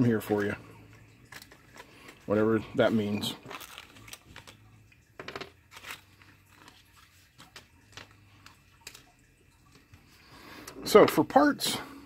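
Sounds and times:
plastic bag crinkling: 0.2s - 9.8s.

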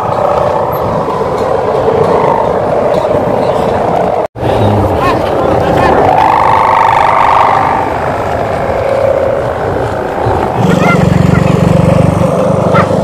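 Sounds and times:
kite hummers buzzing: 0.0s - 13.0s
low loud drone: 4.0s - 13.0s.

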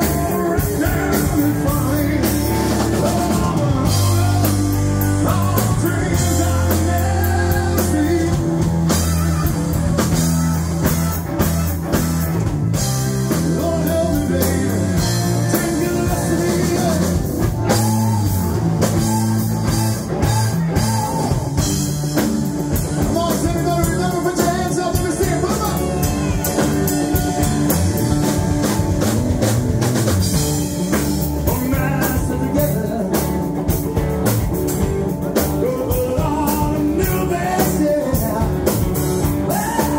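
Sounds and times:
man singing: 0.0s - 11.0s, 13.3s - 21.8s, 22.7s - 28.4s, 30.9s - 34.0s, 35.3s - 39.9s
live rock band playing: 0.0s - 39.9s.

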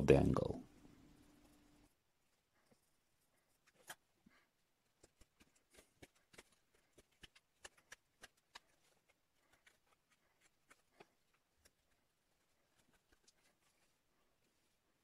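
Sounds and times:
knife shaving wood: 3.5s - 14.8s.

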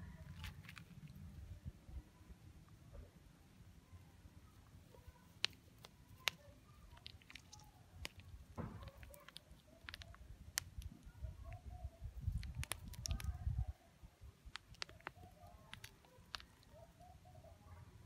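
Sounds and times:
pebbles clicking: 0.2s - 1.2s, 5.2s - 11.1s, 12.2s - 13.4s, 14.4s - 17.2s.

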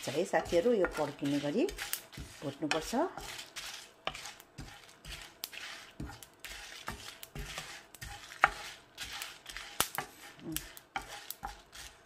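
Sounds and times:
seeds popping and crackling: 0.0s - 2.9s, 9.2s - 11.5s
spices roasting in a pan: 0.0s - 12.0s.

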